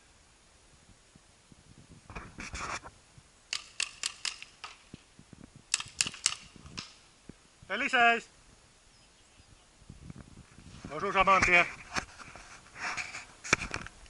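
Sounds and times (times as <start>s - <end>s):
paintball marker shots: 3.5s - 4.9s, 5.7s - 7.0s.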